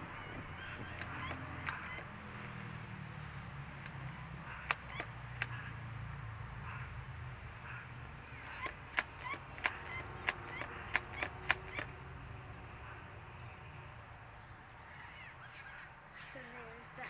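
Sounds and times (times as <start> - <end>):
bird chirps: 0.0 - 2.8, 3.7 - 5.8, 7.6 - 17.0
sharp clicks: 0.0 - 2.9, 3.6 - 5.8, 8.2 - 12.0.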